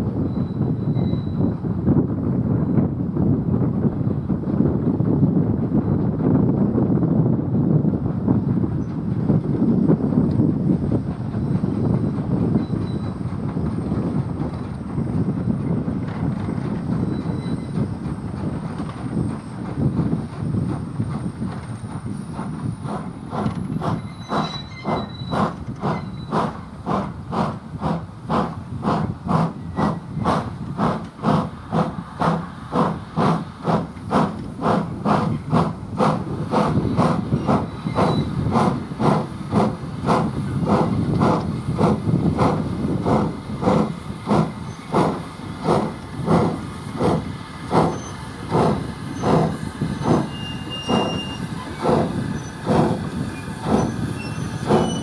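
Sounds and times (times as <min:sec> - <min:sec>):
steam locomotive chuffing: 0:07.7 - 0:55.0.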